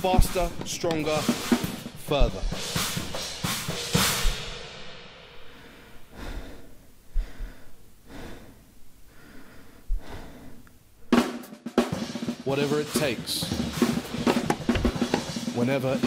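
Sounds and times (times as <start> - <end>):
low thumps: 0.0 - 4.8, 13.5 - 15.5
drum kit strokes: 0.0 - 6.0, 11.1 - 16.0
slow heavy breaths: 5.2 - 11.4.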